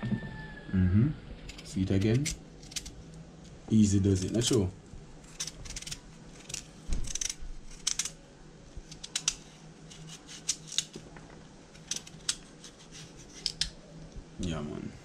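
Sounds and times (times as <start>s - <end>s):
knife scraping pumpkin skin: 1.4s - 3.0s, 5.2s - 8.2s, 8.9s - 10.9s, 11.7s - 13.8s.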